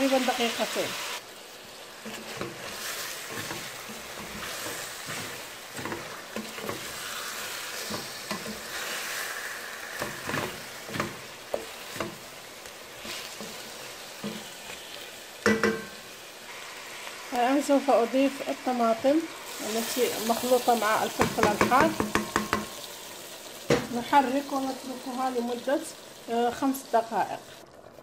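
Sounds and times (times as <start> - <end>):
chicken sizzling in a pot: 0.0 - 28.0
wooden spoon scraping and knocking pot: 2.0 - 9.3, 9.9 - 16.0, 19.8 - 22.8.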